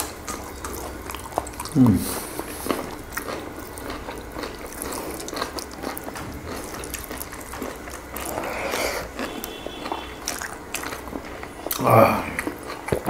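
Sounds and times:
chewing and biting food: 0:00.0 - 0:13.0.

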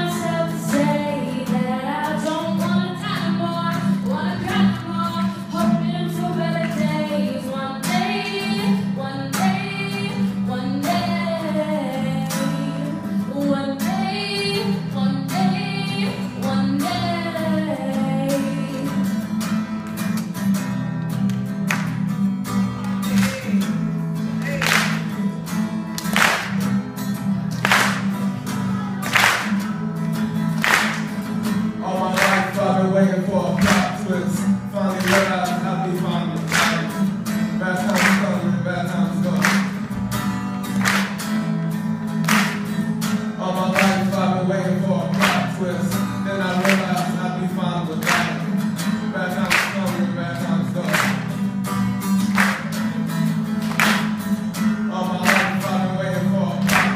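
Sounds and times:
woman singing: 0:00.0 - 0:19.3
acoustic guitar strumming: 0:00.0 - 0:56.9.

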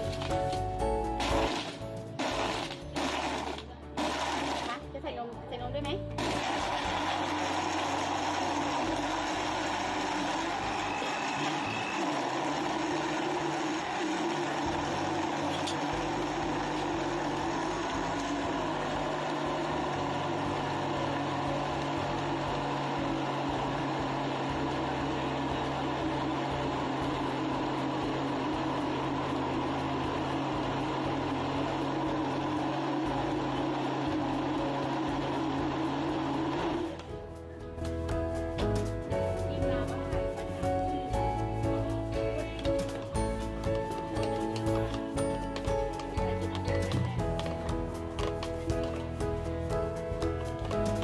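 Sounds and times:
electric blender running: 0:01.2 - 0:04.9, 0:06.1 - 0:37.1.

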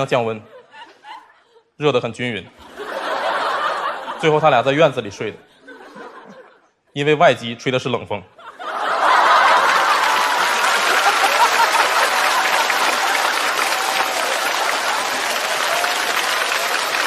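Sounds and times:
audience applauding: 0:08.8 - 0:17.0
voices through clapping: 0:09.1 - 0:17.0.

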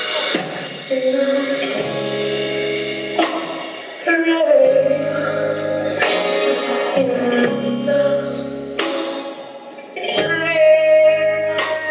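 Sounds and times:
bass guitar: 0:00.0 - 0:11.9
drums: 0:00.0 - 0:11.9
electric guitar: 0:00.0 - 0:11.9
woman singing long notes: 0:04.0 - 0:08.8.

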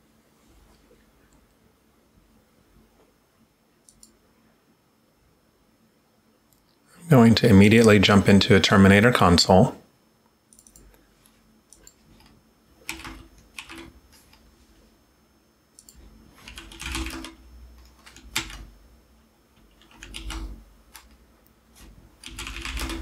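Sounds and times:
keyboard keys clicking: 0:11.7 - 0:14.4, 0:15.8 - 0:18.7, 0:19.6 - 0:21.2, 0:22.2 - 0:23.0.

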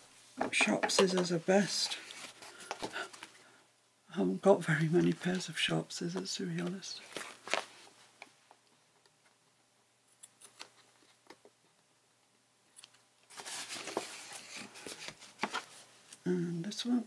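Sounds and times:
paper and card rustling: 0:07.0 - 0:08.0, 0:12.8 - 0:15.9.

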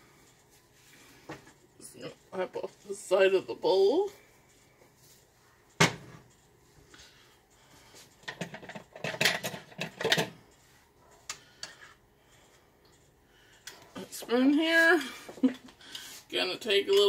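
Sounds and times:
dishes and utensils clinking: 0:08.2 - 0:10.4.

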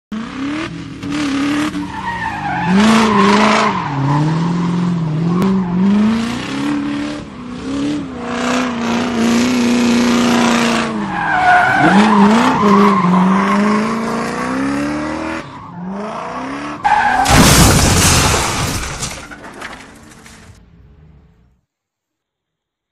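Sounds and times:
race car engine revving: 0:00.1 - 0:17.0.

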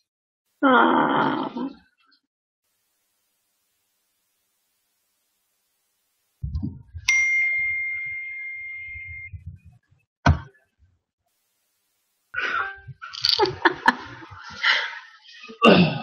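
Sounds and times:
bright ding: 0:07.1 - 0:09.3.

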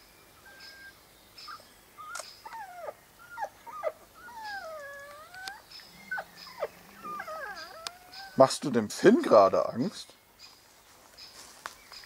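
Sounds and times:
small dog whimpering: 0:02.0 - 0:08.4.

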